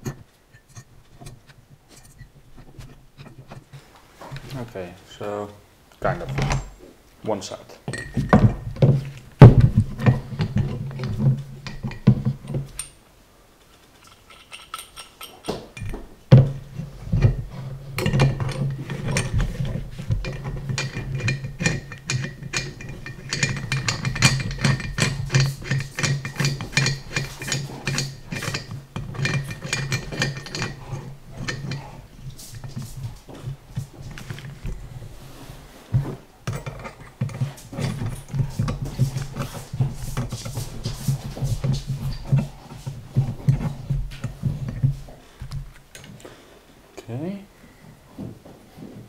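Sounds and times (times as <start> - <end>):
metal clicking and clinking: 9.5 - 13.0, 13.6 - 33.0.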